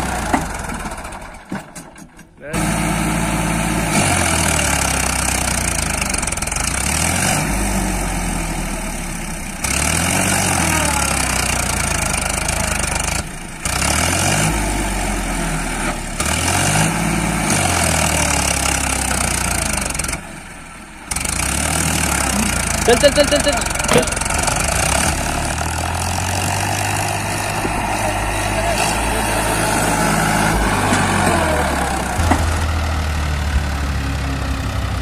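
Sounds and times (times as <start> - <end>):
engine running with rising pitch: 21.4 - 35.0.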